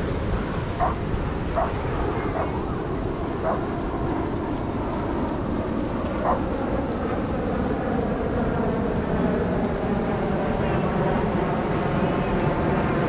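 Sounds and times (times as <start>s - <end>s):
steady background rush: 0.0s - 13.0s
dog barking: 0.8s - 1.0s, 1.6s - 1.8s, 2.4s - 2.6s.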